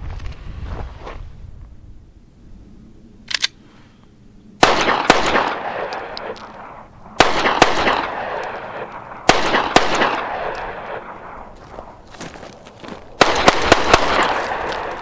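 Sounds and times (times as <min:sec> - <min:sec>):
quick clicks: 0:03.3 - 0:03.6
pistol shots with echo: 0:04.6 - 0:11.6, 0:13.2 - 0:15.0.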